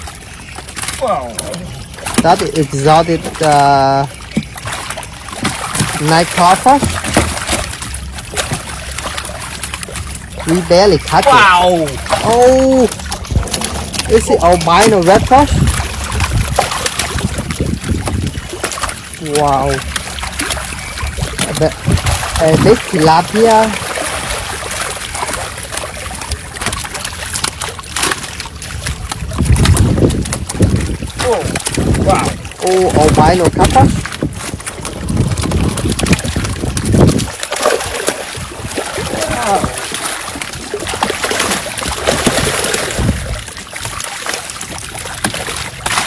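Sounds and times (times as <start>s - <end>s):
fish thrashing and splashing: 0.0s - 46.0s
dull thump: 6.7s - 7.7s.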